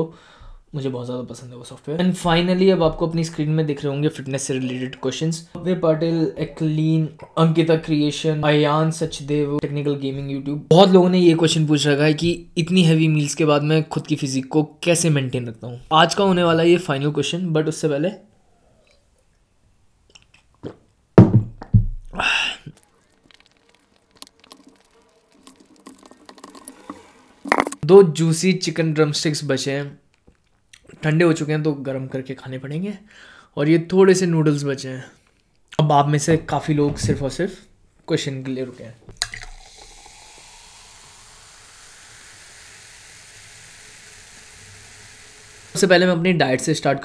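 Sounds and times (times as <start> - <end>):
breathy exhale: 0.1 - 0.6, 22.2 - 22.7, 33.1 - 33.6
loud gulps of drinking: 22.1 - 27.8
chewing and mouth clicks: 22.7 - 27.8, 30.0 - 30.9
cola fizzing as poured: 22.7 - 27.8, 39.1 - 46.0.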